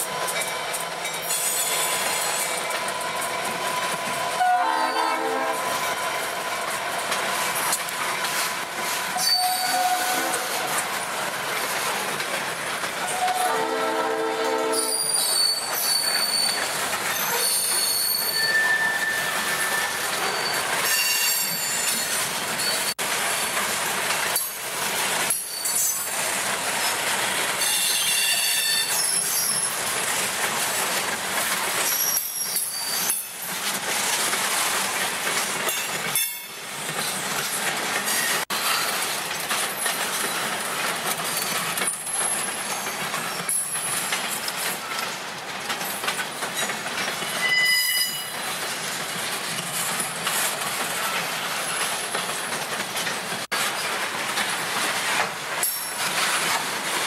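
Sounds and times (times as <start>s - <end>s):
train wheels rumbling on rails: 0.0s - 57.0s
high-pitched wheel squeals: 9.2s - 10.3s, 14.7s - 22.0s, 47.3s - 48.4s.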